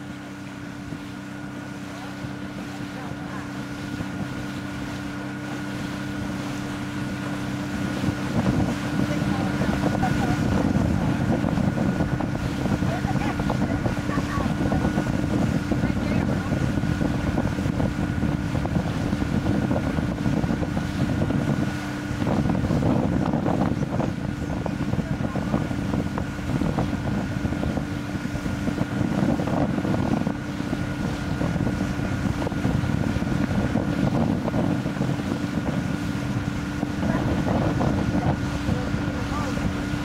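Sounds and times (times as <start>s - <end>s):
outboard motor droning: 0.0s - 40.0s
wind buffeting microphone: 0.0s - 40.0s.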